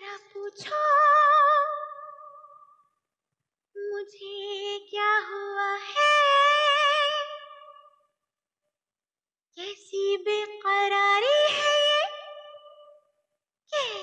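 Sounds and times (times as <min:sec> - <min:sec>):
person singing with vibrato: 0:13.7 - 0:14.0.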